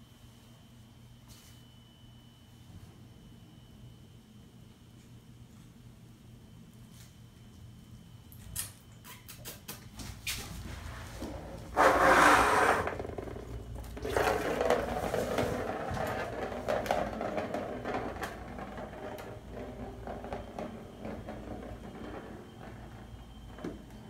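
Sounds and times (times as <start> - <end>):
balls rolling round plastic track: 11.2 - 24.0.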